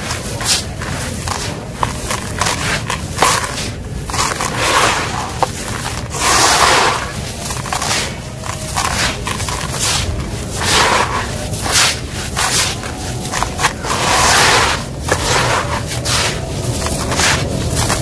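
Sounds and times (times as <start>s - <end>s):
gravel pouring: 0.0s - 18.0s
hands crunching gravel: 0.0s - 18.0s.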